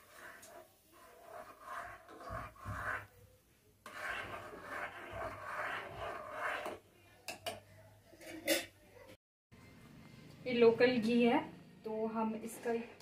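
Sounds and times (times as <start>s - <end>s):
metal spoon scraping metal pot: 0.0s - 3.1s, 3.9s - 6.8s.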